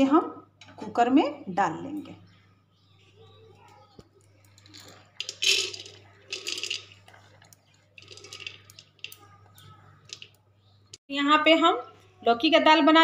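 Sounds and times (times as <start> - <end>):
lentils rattling into metal pot: 4.5 - 10.4.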